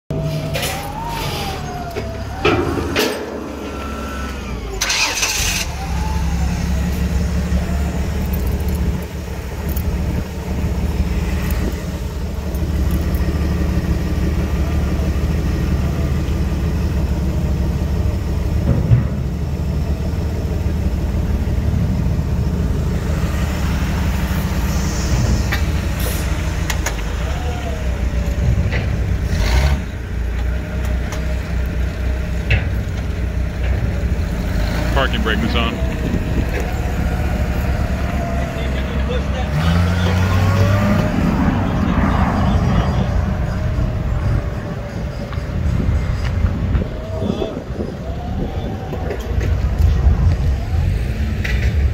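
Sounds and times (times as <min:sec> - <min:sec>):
gasoline engine idling: 0:01.6 - 0:29.2, 0:34.9 - 0:51.5.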